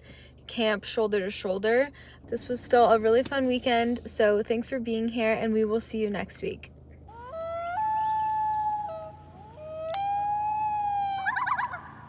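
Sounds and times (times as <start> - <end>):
loon wailing calls: 7.1 - 12.0
loon warbling tremolo call: 7.1 - 12.0.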